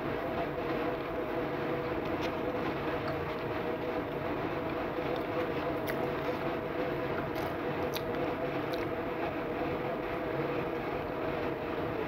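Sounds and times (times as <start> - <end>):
machinery hum: 0.0 - 12.0
clicks of eating: 5.1 - 6.2, 7.2 - 9.0.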